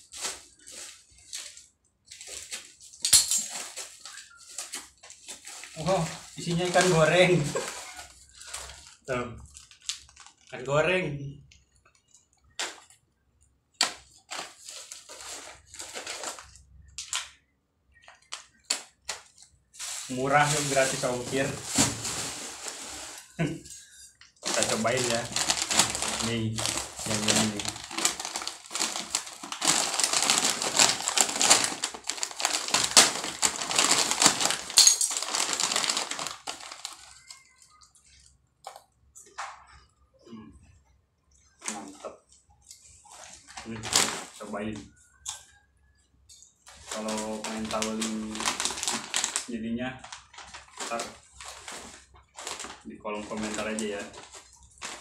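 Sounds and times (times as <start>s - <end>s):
plastic packaging crinkling: 0.0s - 10.7s, 13.8s - 38.3s, 43.0s - 44.9s, 46.6s - 55.0s.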